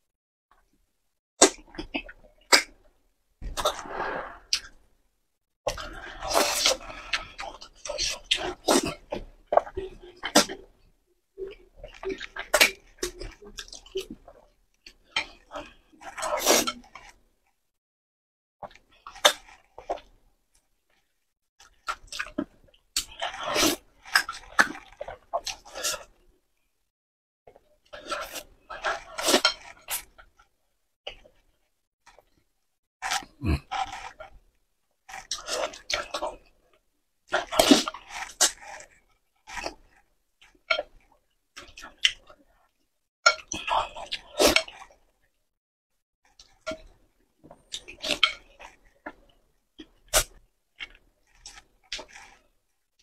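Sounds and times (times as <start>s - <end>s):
noodles being slurped: 3.4s - 4.8s, 5.7s - 10.7s, 21.6s - 26.2s, 27.8s - 30.4s, 33.0s - 34.4s, 35.0s - 36.4s, 37.3s - 41.0s, 47.6s - 52.6s
wet chewing sounds: 11.4s - 17.2s, 20.9s - 26.2s, 33.0s - 34.4s, 35.1s - 45.1s, 46.3s - 52.6s.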